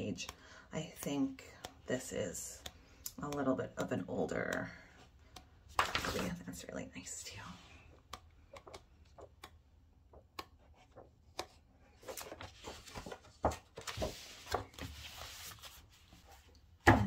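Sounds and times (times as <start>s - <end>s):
paper pages rustling: 5.7s - 6.6s, 10.8s - 16.5s.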